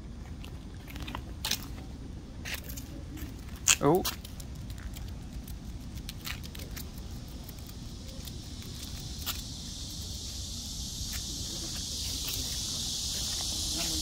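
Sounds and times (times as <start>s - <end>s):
cicada buzz: 3.6s - 14.0s.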